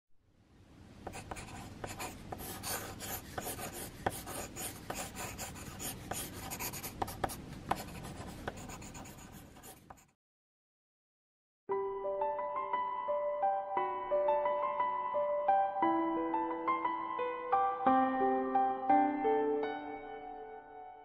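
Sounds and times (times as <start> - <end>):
pencil lead tapping: 1.0 - 10.0
pencil scratching on paper: 1.1 - 10.2.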